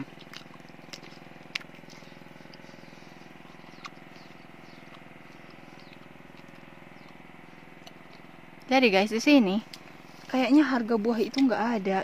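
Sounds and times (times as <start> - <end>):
person chewing juicy fruit: 0.0 - 8.7
steady low hum: 0.0 - 12.0.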